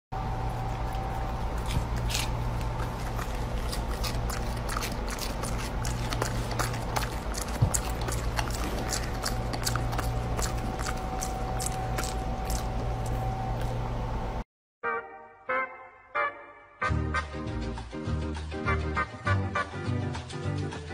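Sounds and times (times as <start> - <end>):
low room hum: 0.2 - 14.4.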